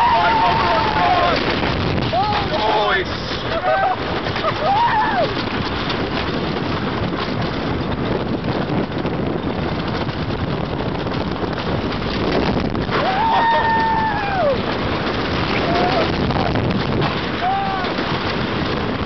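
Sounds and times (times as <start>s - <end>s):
rider yelling: 0.0s - 1.5s, 2.1s - 5.3s, 12.9s - 14.6s, 15.6s - 16.5s, 17.3s - 18.1s
roller coaster train rumbling: 0.0s - 19.0s
wind on microphone: 0.0s - 19.0s.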